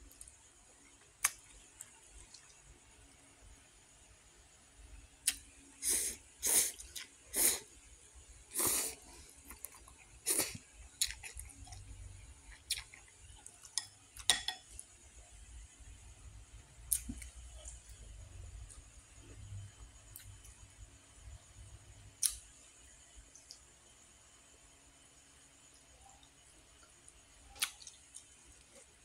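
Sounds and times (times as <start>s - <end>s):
person slurping noodles hissing: 5.8s - 7.7s, 8.5s - 9.1s, 10.2s - 10.6s
person chewing: 8.6s - 14.4s, 16.9s - 17.9s, 27.5s - 28.9s.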